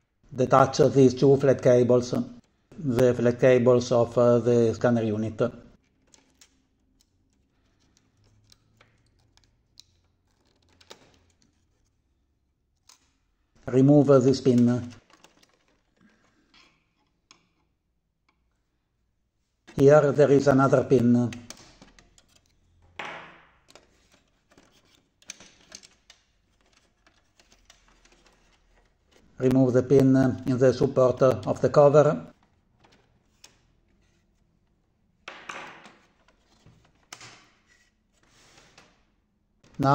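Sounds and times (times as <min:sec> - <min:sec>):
plastic parts clicking: 0:05.7 - 0:12.0, 0:12.7 - 0:13.4, 0:14.4 - 0:18.6, 0:20.8 - 0:29.5, 0:30.4 - 0:34.1.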